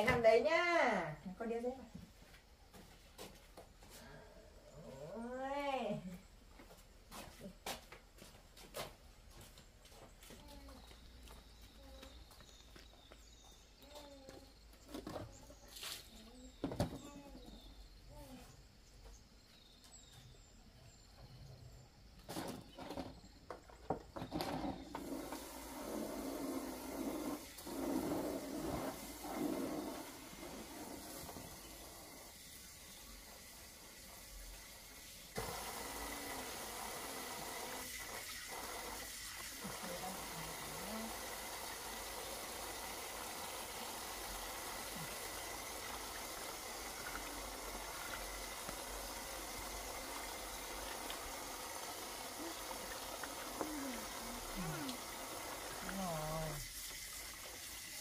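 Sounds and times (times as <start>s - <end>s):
water running from a tap: 24.9s - 58.0s.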